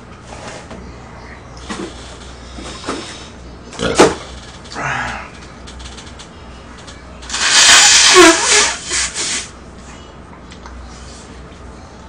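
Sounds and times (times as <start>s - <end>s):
man blowing his nose: 7.3s - 9.5s.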